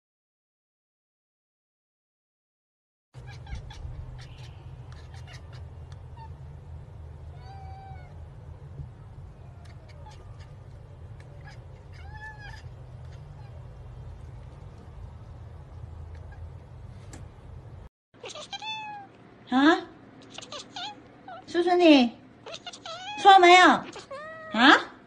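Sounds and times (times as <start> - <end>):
cat meowing: 3.2 - 6.4, 7.3 - 8.2, 9.3 - 13.8, 18.2 - 19.2, 20.2 - 21.5, 22.4 - 24.6
steady low hum: 3.2 - 24.4.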